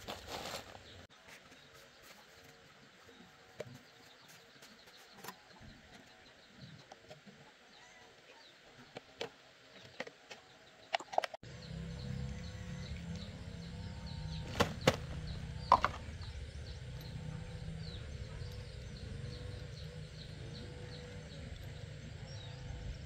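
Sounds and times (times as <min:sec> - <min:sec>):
low background rumble: 0:11.4 - 0:23.0.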